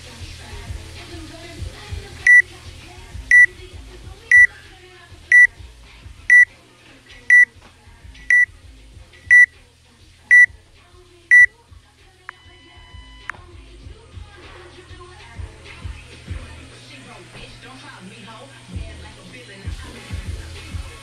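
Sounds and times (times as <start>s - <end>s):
countdown timer beeping: 8.3s - 8.5s, 9.3s - 9.5s.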